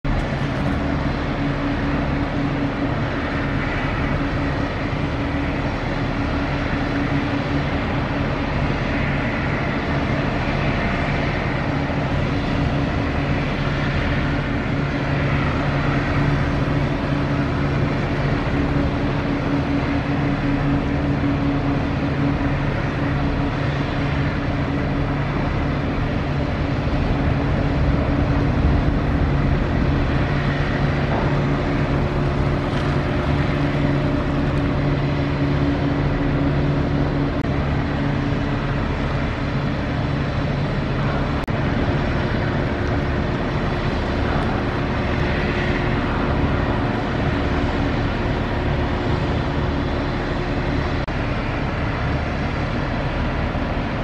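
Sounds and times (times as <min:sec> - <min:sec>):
barge diesel engine humming: 0:00.0 - 0:54.0.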